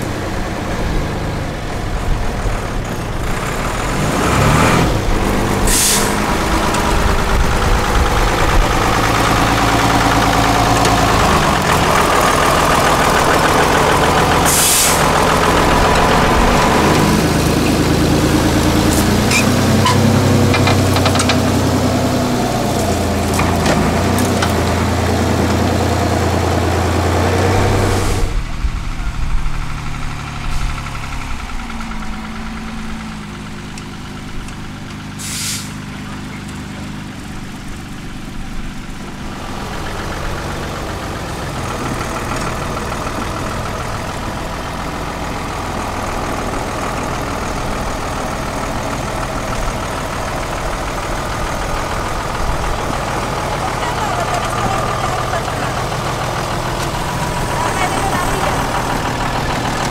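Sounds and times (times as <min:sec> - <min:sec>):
truck engine revving: 0:00.0 - 0:59.9
short hiss: 0:35.2 - 0:35.8.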